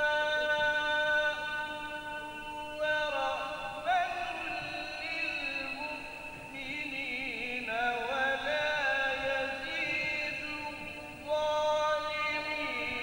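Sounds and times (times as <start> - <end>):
man reciting melodically: 0.0 - 13.0.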